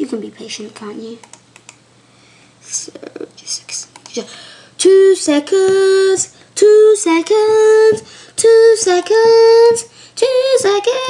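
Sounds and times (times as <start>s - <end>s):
boy singing wordless tune: 2.6s - 11.0s.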